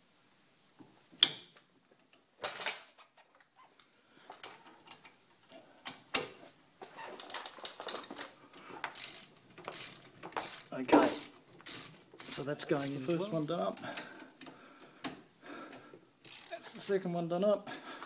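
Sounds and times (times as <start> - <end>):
socket ratchet clicking: 16.2 - 16.6.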